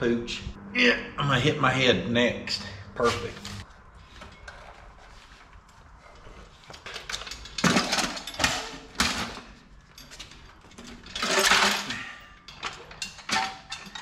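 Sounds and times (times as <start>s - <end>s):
tools and metal parts clanking: 3.0s - 14.0s.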